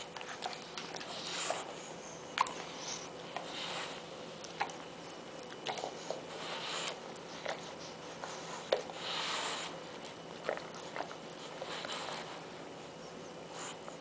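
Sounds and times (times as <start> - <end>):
dog snorting: 5.6 - 12.5.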